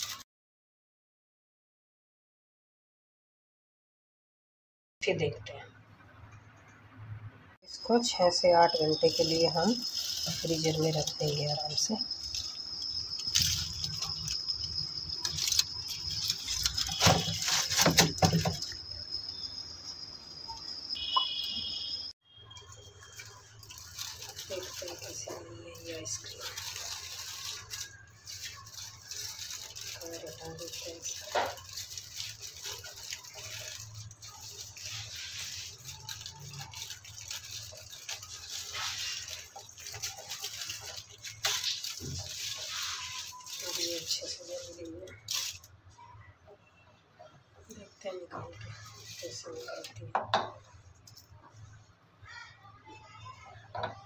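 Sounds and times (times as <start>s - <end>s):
foil rustles and clicks: 0.0s - 0.2s, 8.7s - 18.8s, 22.6s - 45.7s, 48.4s - 51.3s
high-pitched whine: 18.2s - 26.0s.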